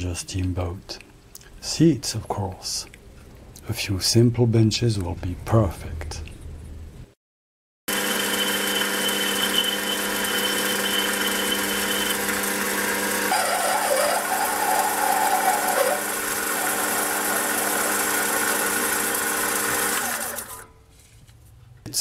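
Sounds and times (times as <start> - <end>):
lathe motor hum: 7.9 - 20.7
file rubbing spinning metal: 8.2 - 12.3, 13.0 - 20.6
cutting tool scraping metal: 13.2 - 18.0.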